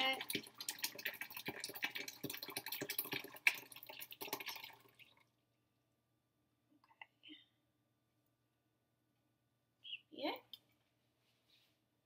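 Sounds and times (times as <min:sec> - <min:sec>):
liquid pouring and splashing: 0:00.0 - 0:05.4.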